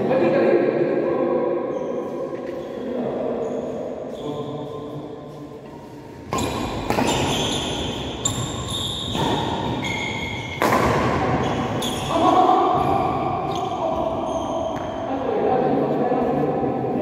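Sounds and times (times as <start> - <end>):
shoes squeaking on court: 1.7 - 15.1
racket hitting shuttlecock: 6.3 - 12.0.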